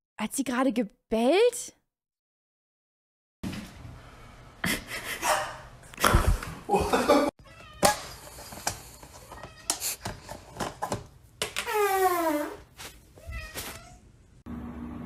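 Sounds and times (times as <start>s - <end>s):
cat meowing: 13.2s - 14.0s.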